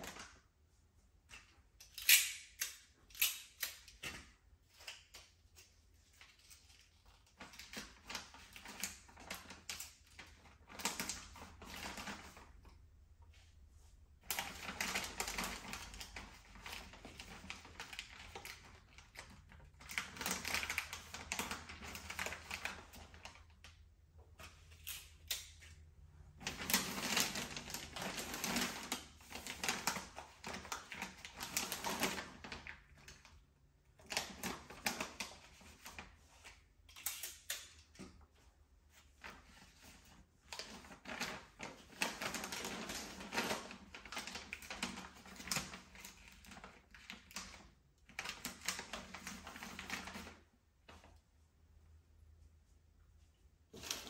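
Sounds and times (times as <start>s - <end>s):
wrapping paper crinkling: 3.2s - 12.9s, 14.1s - 23.7s, 26.3s - 33.4s, 34.0s - 37.7s, 38.9s - 51.1s.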